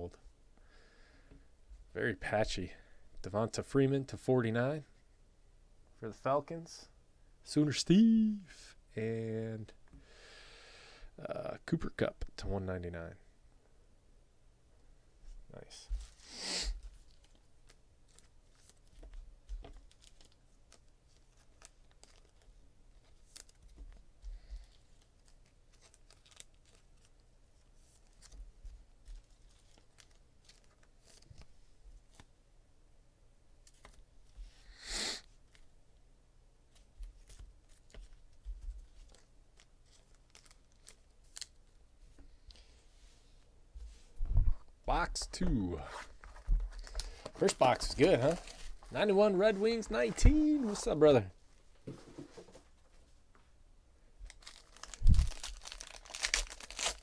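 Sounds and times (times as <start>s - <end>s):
cards and packaging rustling: 16.8s - 31.5s, 33.6s - 34.0s, 36.7s - 41.8s, 45.5s - 51.2s, 54.2s - 57.0s.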